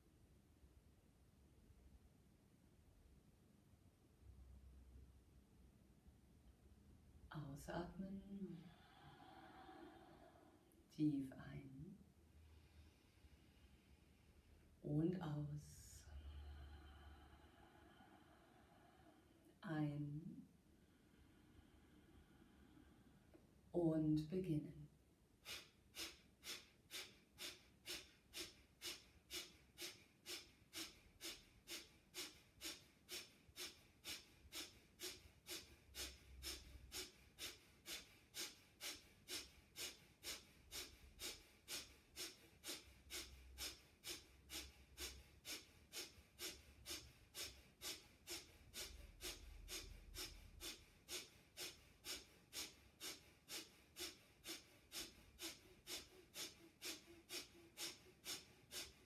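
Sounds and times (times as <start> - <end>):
woman's rapid nasal breaths: 8.4 - 10.8, 16.1 - 19.6, 25.4 - 59.0.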